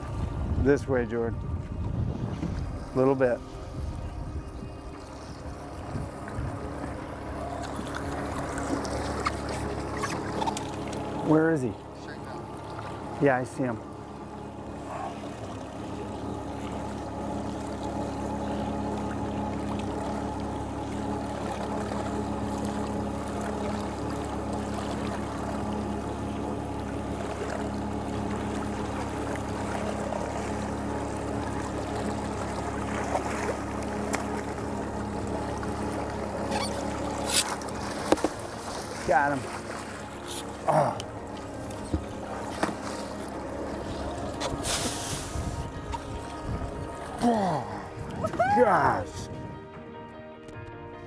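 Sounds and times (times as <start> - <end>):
outboard motor droning: 0.0 - 51.0.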